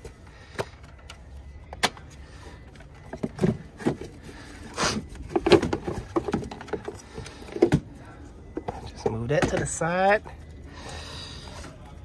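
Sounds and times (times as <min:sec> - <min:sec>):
plastic parts clicking and knocking: 0:05.2 - 0:07.9, 0:08.5 - 0:09.8.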